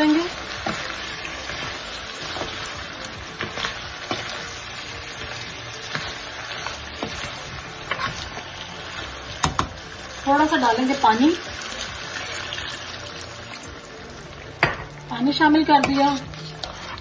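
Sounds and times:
food sizzling in a pan: 0:00.0 - 0:17.0
spatula scraping and knocking pan: 0:00.4 - 0:09.8.

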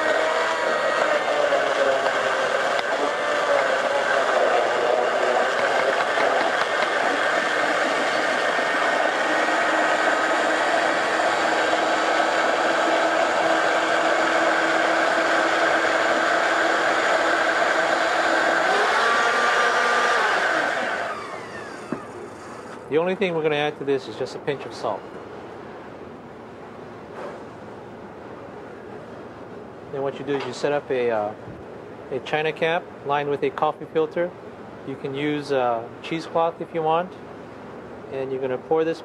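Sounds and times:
blender motor running: 0:00.0 - 0:22.9.

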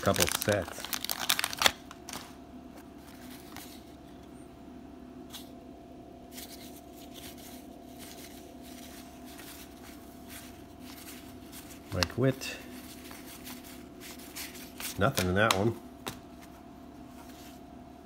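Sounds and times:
wax-paper wrapper crinkling: 0:00.0 - 0:04.0, 0:06.3 - 0:15.7
steady low hum: 0:00.0 - 0:18.0
cards sliding and ticking: 0:06.3 - 0:16.6.

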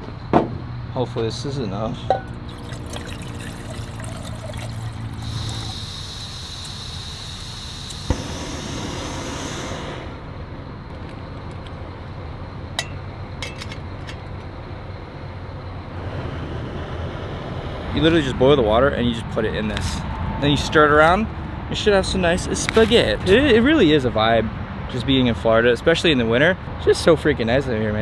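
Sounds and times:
water pouring into metal pot: 0:02.4 - 0:06.8.

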